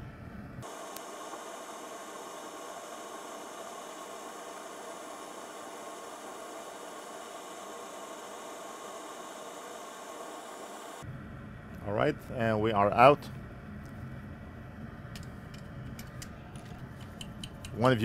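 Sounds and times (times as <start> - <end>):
faint hum: 0.0 - 18.0
steady hiss: 0.6 - 11.1, 15.2 - 18.0.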